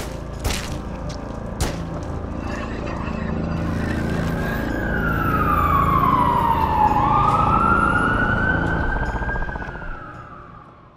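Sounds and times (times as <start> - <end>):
siren wailing: 3.7 - 10.9.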